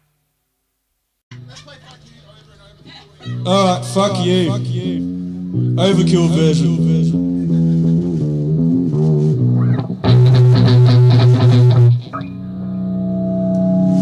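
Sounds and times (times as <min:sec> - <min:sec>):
heavy rock guitar riff: 0:03.4 - 0:14.0.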